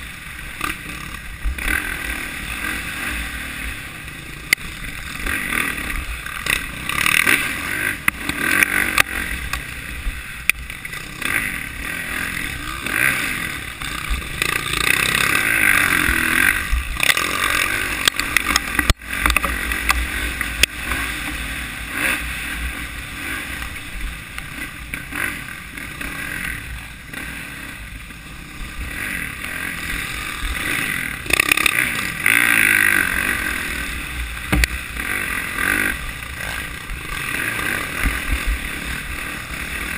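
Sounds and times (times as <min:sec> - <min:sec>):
dirt bike engine revving: 0:00.0 - 0:39.9
knocks and clatter on rough ground: 0:16.9 - 0:21.5, 0:34.4 - 0:35.2.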